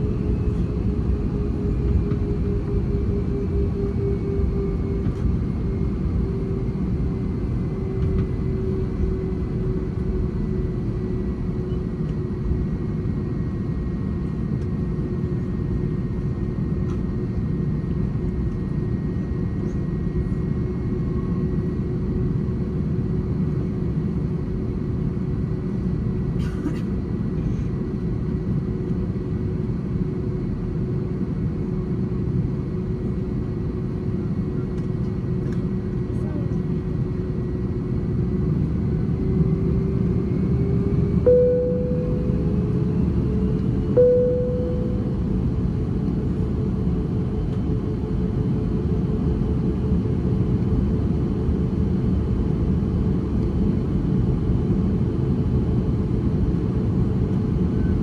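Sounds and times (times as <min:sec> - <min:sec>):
airplane cabin engine roar: 0:00.0 - 0:58.0
steady hum: 0:40.5 - 0:47.2.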